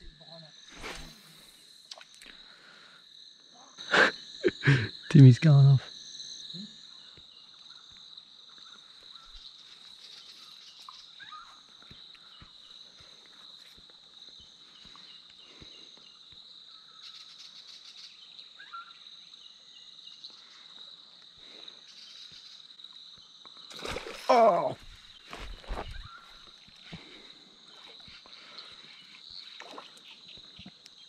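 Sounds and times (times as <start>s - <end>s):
insects droning: 0.0s - 31.0s
faint bird chirps: 6.5s - 12.8s, 14.7s - 20.8s, 24.6s - 27.1s.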